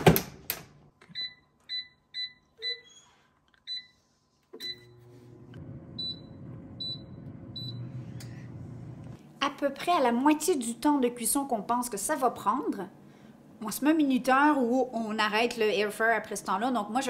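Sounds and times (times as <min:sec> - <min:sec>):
air fryer fan humming: 0:04.6 - 0:09.2.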